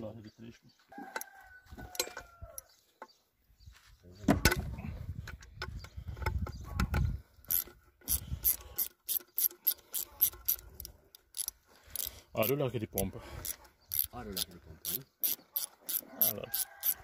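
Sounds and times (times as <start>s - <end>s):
ratchet wrench clicking: 7.4s - 12.6s, 13.4s - 17.0s.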